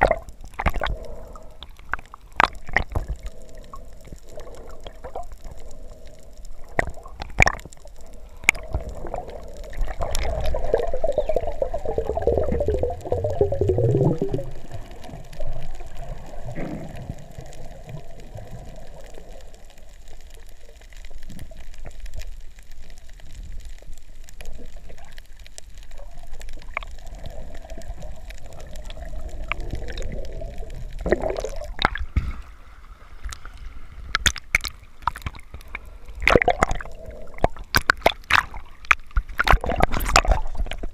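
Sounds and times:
muffled underwater noise: 0.0s - 22.0s
water sloshing and splashing: 26.6s - 40.9s.

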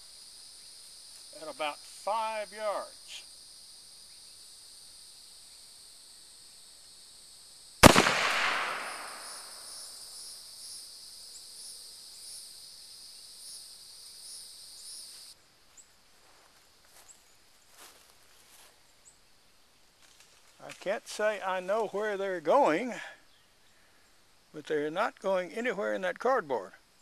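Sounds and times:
pistol shot with echo: 7.8s - 9.9s.

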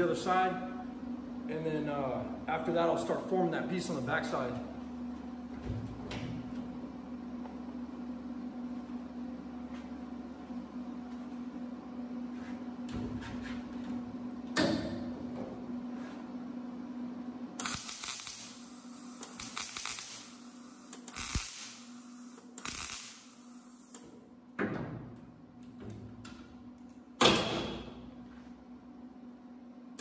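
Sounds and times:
steady hum: 0.0s - 30.0s
welder crackling bursts: 17.6s - 24.0s.

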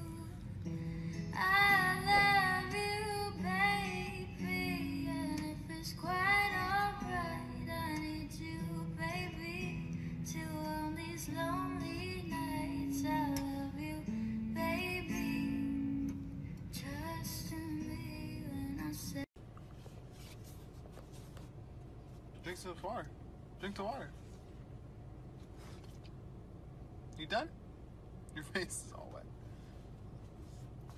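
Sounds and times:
high singing voice: 1.2s - 16.0s.

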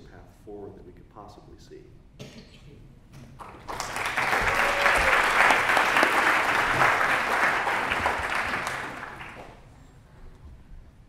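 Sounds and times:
audience applauding: 3.4s - 9.7s.

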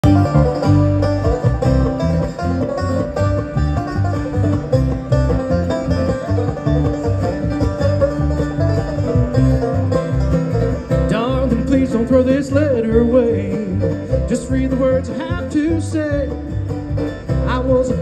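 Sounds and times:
acoustic guitar: 0.0s - 18.0s
banjo: 0.0s - 18.0s
electric bass: 0.0s - 18.0s
mandolin: 0.0s - 18.0s.

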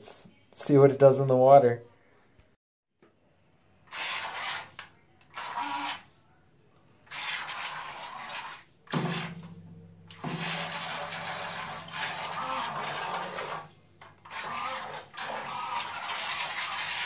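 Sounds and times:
propellers churning water: 10.1s - 13.6s.

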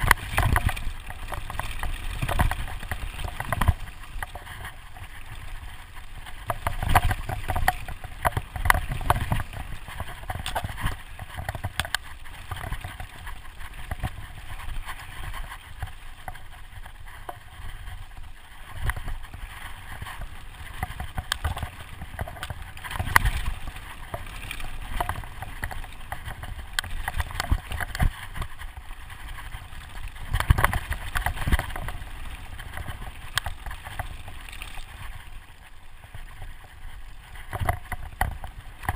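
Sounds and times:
bike clattering over bumps: 0.0s - 16.4s, 18.7s - 35.2s.

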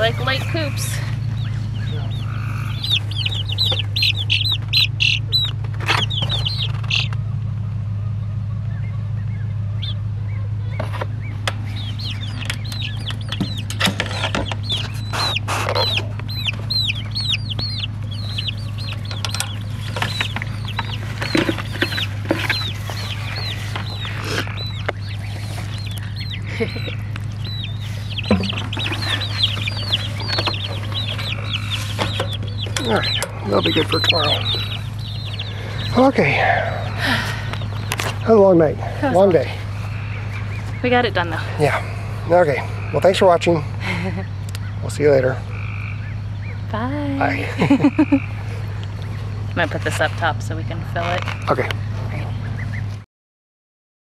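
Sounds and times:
chicks peeping: 0.0s - 53.0s
steady low hum: 0.0s - 53.0s
sharp clicks and knocks: 12.2s - 16.6s, 18.8s - 22.7s.

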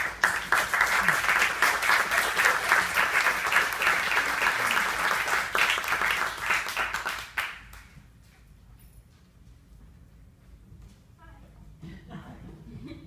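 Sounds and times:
audience applauding: 0.0s - 7.9s.

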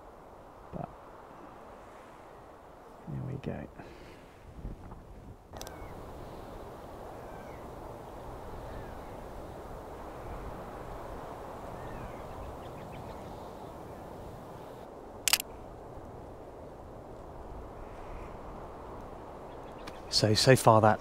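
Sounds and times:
open-air background noise: 0.0s - 21.0s
sharp click: 5.6s - 5.8s, 15.3s - 15.5s
distant bird calls: 5.6s - 15.6s, 17.7s - 21.0s.

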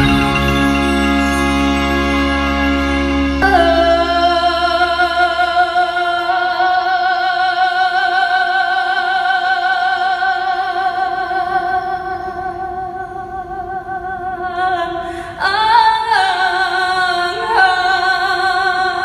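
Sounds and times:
backing accompaniment: 0.0s - 5.4s
woman singing long note: 3.4s - 19.0s.

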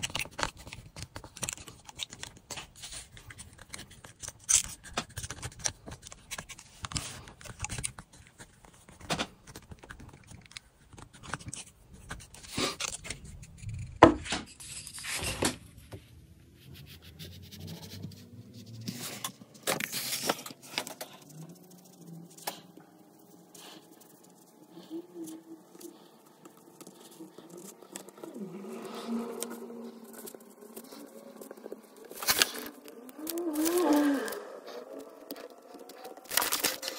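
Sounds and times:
tools scraping and clicking: 0.0s - 8.5s, 29.3s - 36.9s.

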